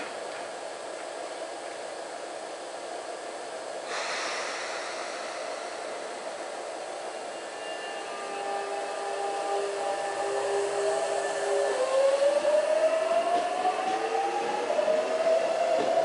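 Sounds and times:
train traction motors whining: 0.0 - 16.0
compressed air hiss: 3.8 - 7.3.

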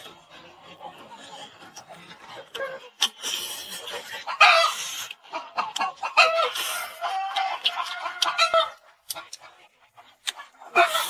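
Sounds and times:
chickens clucking: 0.0 - 11.0
loud eating noise: 0.0 - 11.0.

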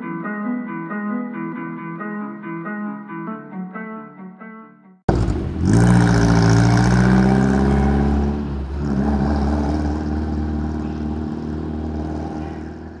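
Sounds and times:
car engine driving away: 5.1 - 13.0.

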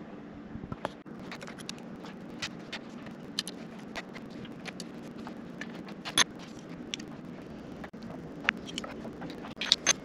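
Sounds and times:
faint low hum: 0.0 - 10.0
small screws clicking: 7.8 - 10.0.

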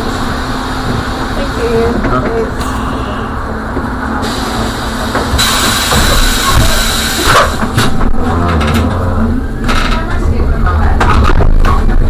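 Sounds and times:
bus humming: 0.0 - 12.0.

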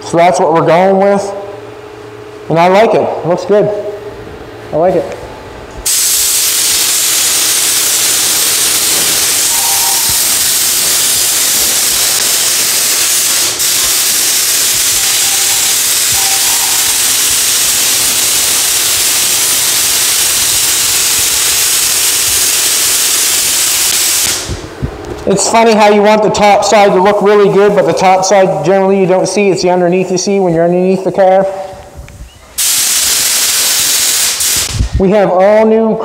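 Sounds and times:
paint spray gun hissing: 5.8 - 24.7, 32.1 - 34.9.

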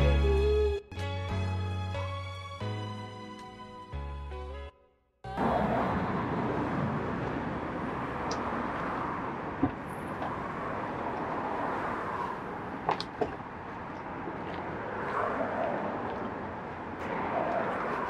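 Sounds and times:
distant traffic: 5.3 - 18.0.

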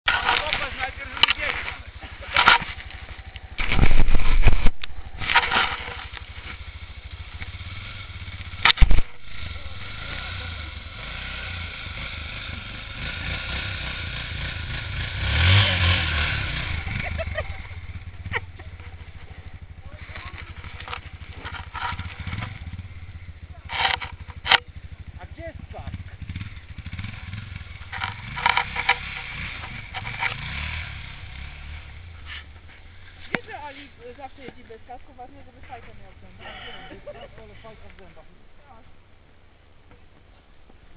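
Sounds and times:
motorcycle engine idling and revving: 0.0 - 40.9
sharp loud thumps: 0.1 - 6.6, 8.4 - 9.6.

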